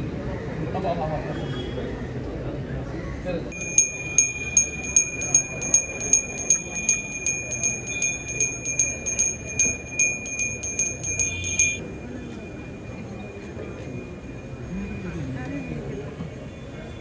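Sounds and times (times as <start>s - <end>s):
temple bell ringing: 3.6s - 15.0s.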